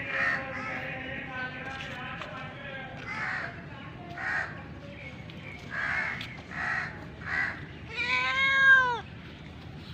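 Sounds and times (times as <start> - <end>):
harsh bird calls: 4.2 - 9.2
cat meowing: 7.9 - 9.0.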